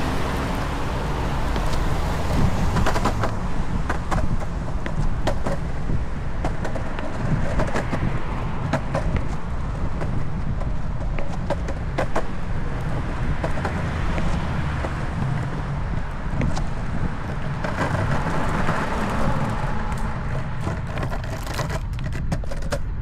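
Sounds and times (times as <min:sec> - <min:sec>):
skateboard wheels rumbling on concrete: 0:00.0 - 0:23.0
wheels clacking over joints: 0:00.0 - 0:23.0.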